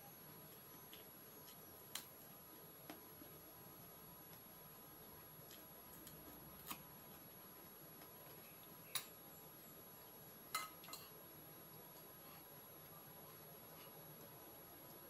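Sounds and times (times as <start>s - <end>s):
spoon and fork clinking on plate: 10.5s - 11.1s.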